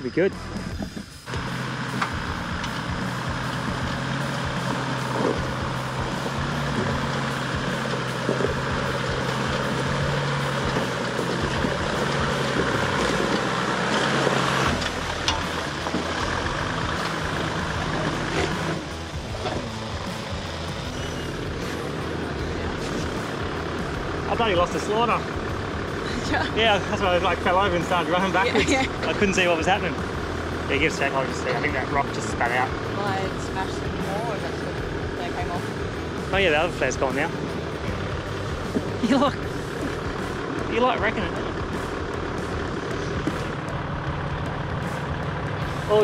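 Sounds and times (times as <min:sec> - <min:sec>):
truck engine pulling under load: 0:00.1 - 0:46.0.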